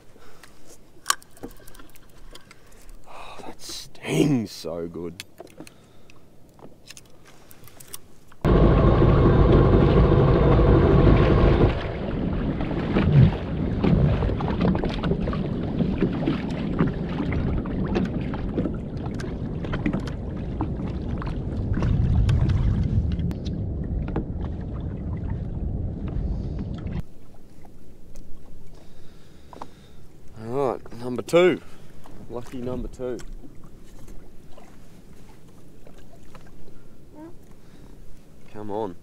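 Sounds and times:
jet ski engine running: 8.5 - 12.6.

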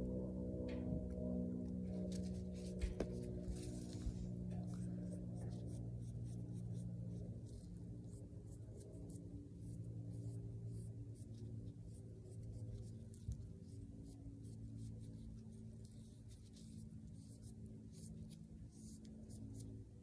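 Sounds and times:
soft music with sustained chords: 0.0 - 11.3
light scratching and rubbing: 1.9 - 9.2.

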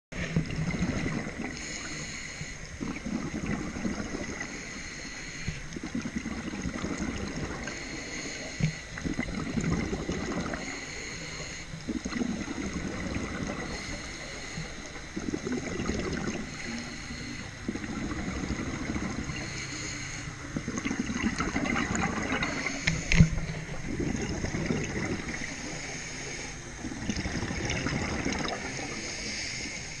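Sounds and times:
gurgling exhaled bubbles: 0.2 - 5.0, 5.6 - 29.8
regulator hissing inhalation: 1.5 - 2.8, 4.1 - 6.0, 7.4 - 9.2, 10.1 - 12.0, 13.4 - 15.2, 16.2 - 17.9, 19.2 - 20.7, 22.0 - 23.7, 25.2 - 26.9, 28.4 - 30.0.

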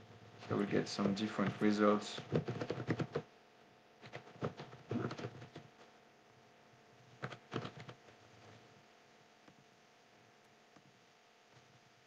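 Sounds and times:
computer keyboard typing: 2.2 - 3.2, 4.0 - 5.7, 7.2 - 8.0.

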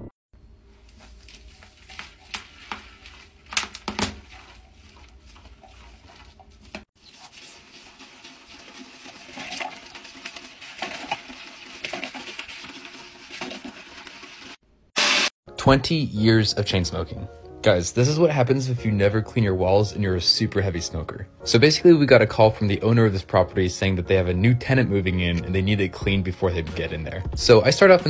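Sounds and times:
toilet brush scrubbing bowl: 0.6 - 14.6.

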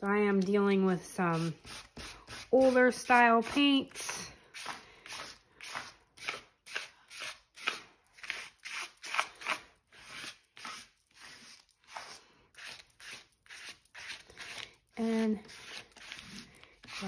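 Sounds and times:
paint scraping on paper: 4.6 - 17.0.

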